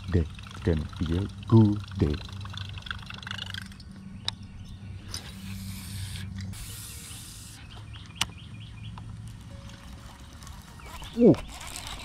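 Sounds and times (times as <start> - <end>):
fishing reel whirring: 0.0 - 3.8, 5.2 - 7.6, 11.4 - 12.0.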